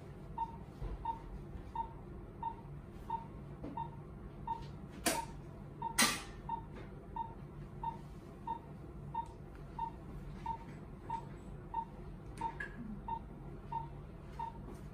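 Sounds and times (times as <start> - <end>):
pulse monitor beeping: 0.3 - 14.9.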